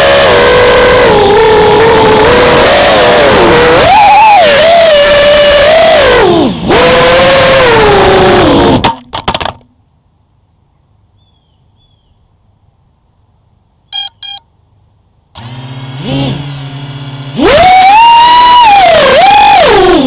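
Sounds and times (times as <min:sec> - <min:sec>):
drone motors whining: 0:00.0 - 0:08.8, 0:15.4 - 0:20.0
short beeps: 0:13.9 - 0:14.5.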